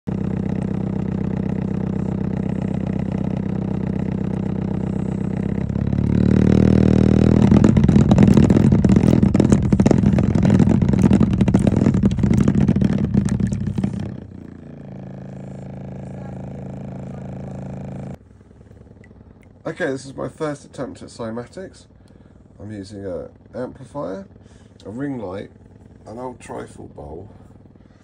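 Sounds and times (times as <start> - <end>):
low tone buzz: 0.0 - 21.1
bowl and liquid rattling: 7.3 - 14.2.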